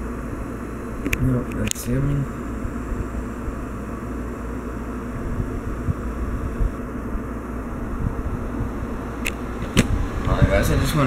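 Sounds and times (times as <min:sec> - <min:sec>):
low background rumble: 0:02.2 - 0:11.0.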